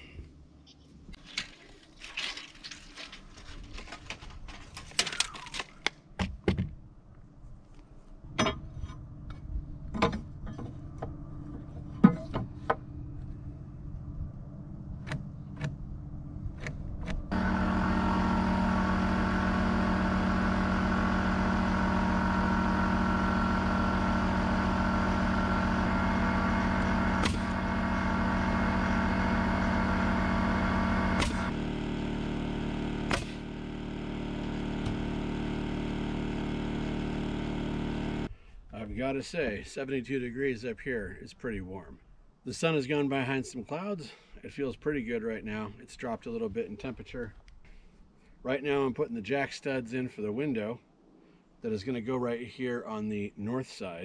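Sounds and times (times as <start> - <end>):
motor drone with low hum: 7.7 - 38.4.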